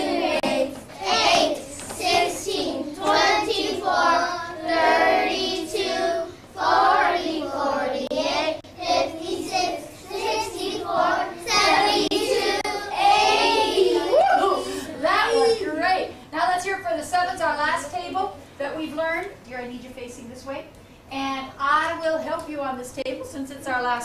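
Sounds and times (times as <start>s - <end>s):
children singing in unison: 0.0s - 14.1s.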